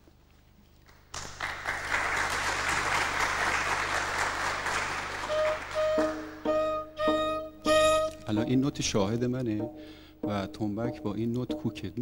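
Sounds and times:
audience applauding: 0.9s - 6.5s
flute held notes: 5.2s - 8.5s.

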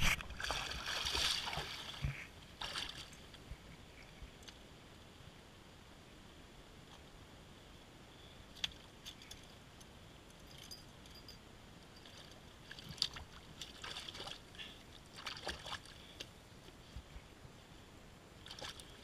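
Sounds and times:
wading steps splashing in water: 0.0s - 3.3s, 12.1s - 16.3s, 18.4s - 19.0s.

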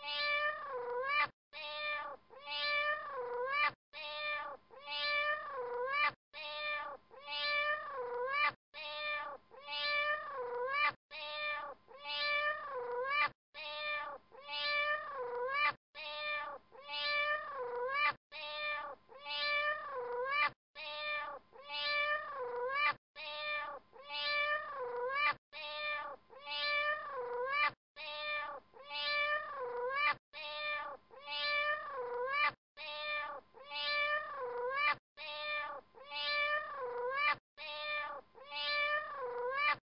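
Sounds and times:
cat meowing: 0.0s - 39.8s.

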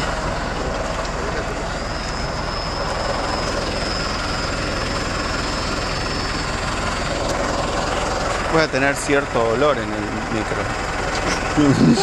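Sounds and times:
thin high whine: 0.0s - 6.6s
vehicle engine rumbling: 0.0s - 12.0s.

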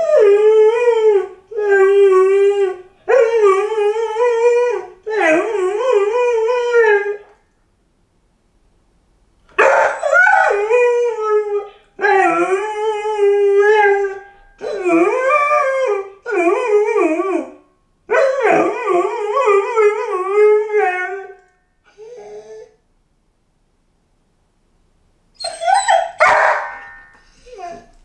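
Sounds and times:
puppy howling: 9.6s - 22.7s, 25.4s - 28.0s.

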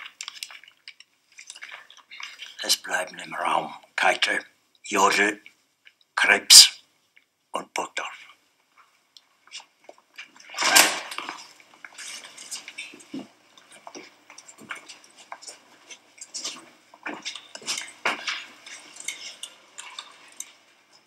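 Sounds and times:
small clinks and knocks: 0.0s - 2.6s, 9.5s - 21.0s
footsteps and shuffling: 8.0s - 21.0s.

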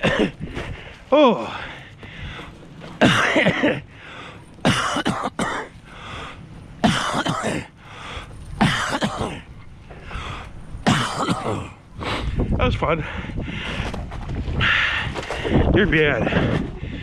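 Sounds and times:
man huffing for breath: 5.6s - 6.7s, 7.3s - 10.8s, 11.4s - 14.0s.

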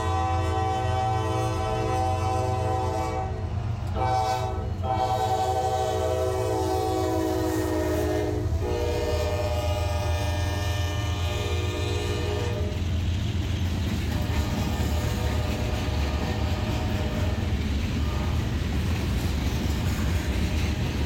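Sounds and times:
train horn blasts: 0.0s - 12.9s, 14.1s - 18.6s
diesel locomotive rumble: 0.0s - 21.0s
freight cars rolling: 11.4s - 21.0s.

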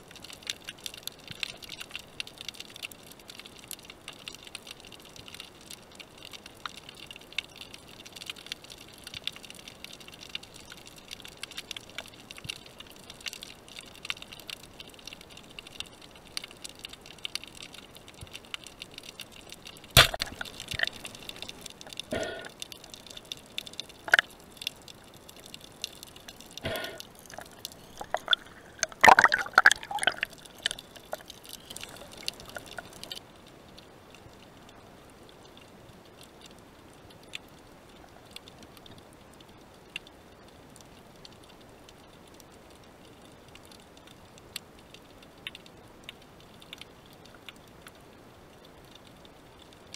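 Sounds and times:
underwater crackle of tiny clicks: 0.0s - 49.9s
sharp underwater knocks: 20.0s - 20.9s.

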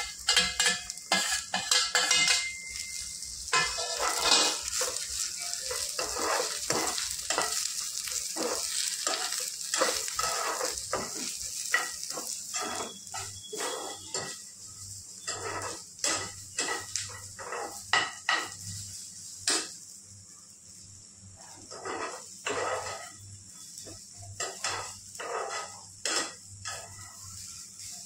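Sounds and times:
metal spoon scraping pan: 0.0s - 14.4s, 15.2s - 18.6s, 21.6s - 23.2s, 23.8s - 27.6s
faint sizzle: 0.0s - 28.0s.

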